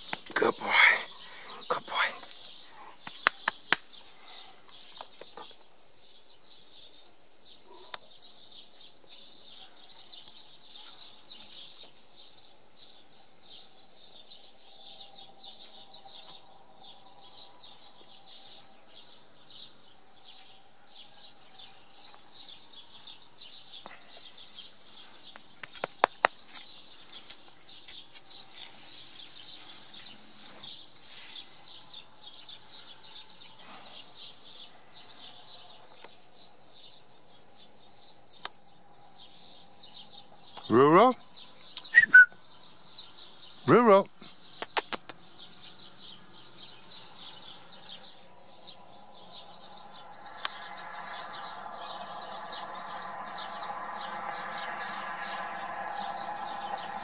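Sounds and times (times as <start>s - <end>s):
birds chirping and singing: 0.0s - 57.0s
sharp clicks: 44.6s - 45.2s.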